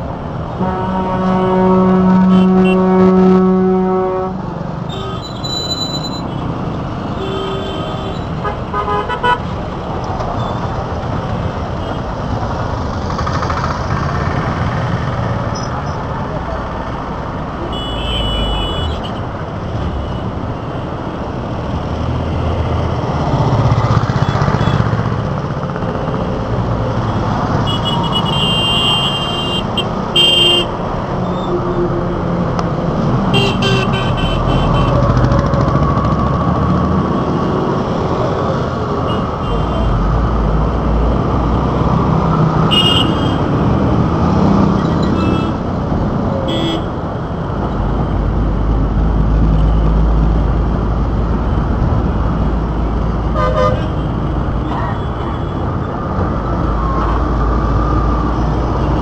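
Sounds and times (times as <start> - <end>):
traffic rumble of engines and tyres: 0.0 - 59.0
vehicle horn honks: 0.6 - 6.3, 17.7 - 19.2, 42.7 - 43.4, 53.4 - 54.1.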